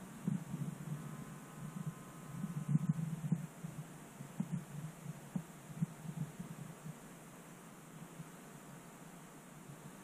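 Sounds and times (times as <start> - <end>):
soft low knocks: 0.0 - 7.1
faint steady hiss: 0.0 - 10.0.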